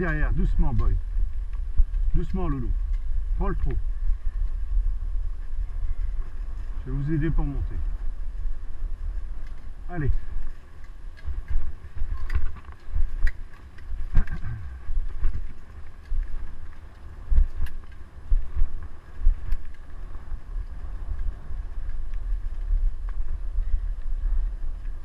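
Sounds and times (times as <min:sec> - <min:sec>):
rig rolling on forest track: 0:00.0 - 0:25.0
wind buffeting microphone: 0:00.0 - 0:25.0.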